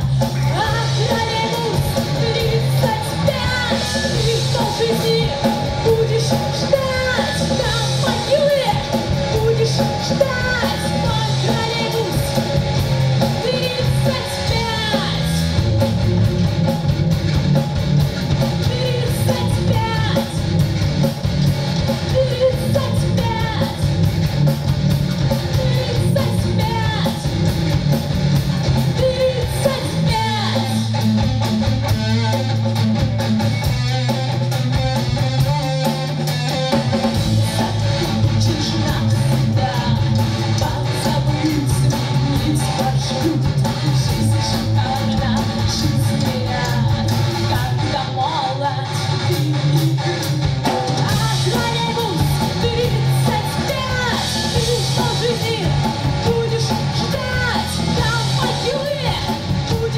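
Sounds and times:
woman singing: 0.0s - 12.5s, 13.2s - 15.5s, 18.6s - 20.4s, 22.0s - 23.9s, 25.3s - 27.3s, 28.8s - 31.0s, 37.4s - 50.3s, 51.0s - 59.9s
drum kit: 0.0s - 59.9s
electric guitars: 0.0s - 59.9s.

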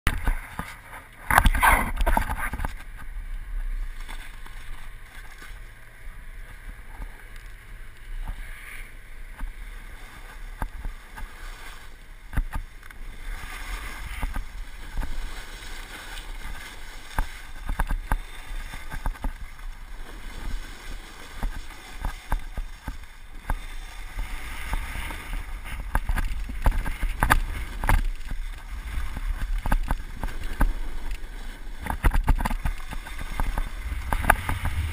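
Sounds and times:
microphone handling noise: 0.1s - 3.8s, 31.8s - 34.9s
wind rumble on microphone: 0.1s - 34.9s
snowboard scraping over snow: 0.2s - 7.2s, 8.3s - 34.9s.

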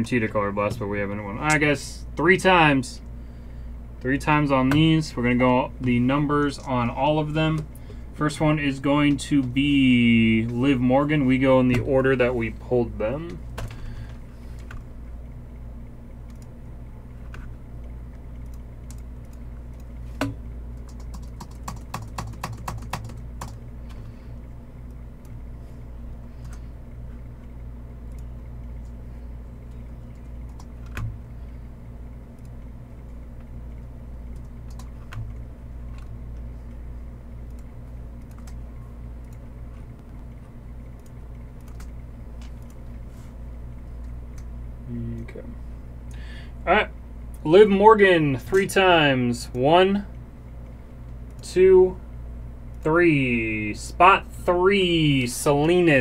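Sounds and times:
steady low hum: 0.0s - 56.0s
computer keyboard typing: 20.7s - 23.6s, 30.1s - 31.2s, 34.3s - 36.2s, 37.5s - 38.6s, 41.0s - 42.8s.

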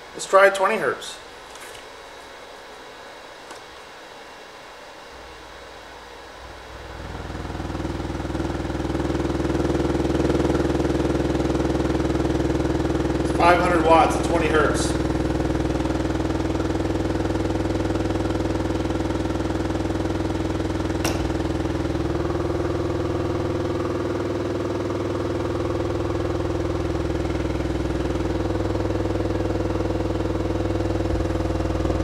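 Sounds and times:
subwoofer low drone: 5.1s - 32.0s
sharp click: 21.0s - 21.4s.

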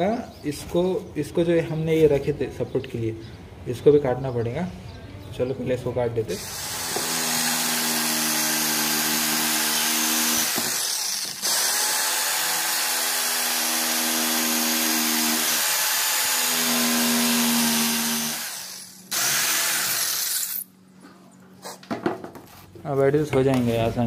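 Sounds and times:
electric jigsaw sawing wood: 6.4s - 20.5s.

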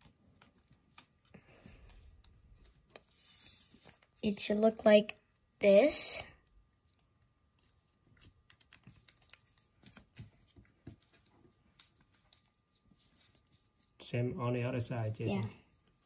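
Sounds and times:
paper being folded and creased: 0.0s - 4.6s, 6.8s - 14.0s.

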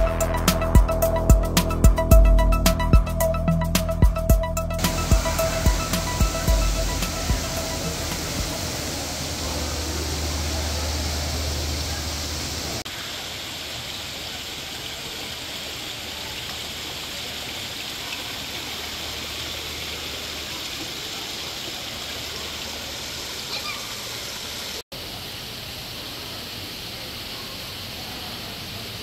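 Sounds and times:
low hum: 0.0s - 12.8s
running water rushing: 0.0s - 29.0s.

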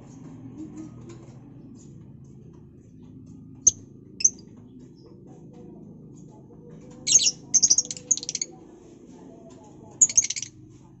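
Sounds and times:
bird chirps: 3.7s - 4.4s, 7.1s - 8.5s, 10.0s - 10.5s.

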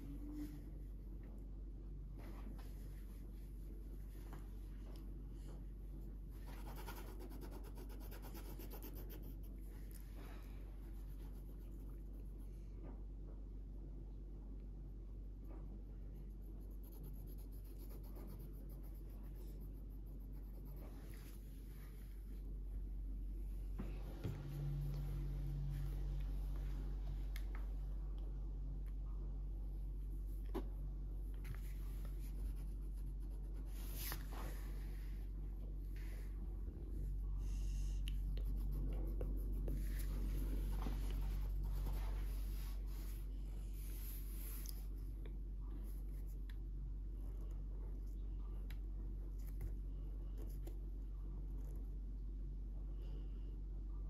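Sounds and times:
steady low hum: 0.0s - 54.0s
felt-tip pen scribbling on paper: 16.5s - 20.9s.

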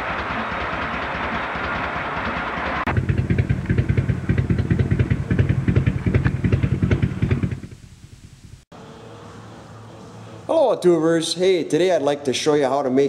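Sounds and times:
motorcycle engine idling: 0.0s - 8.6s.

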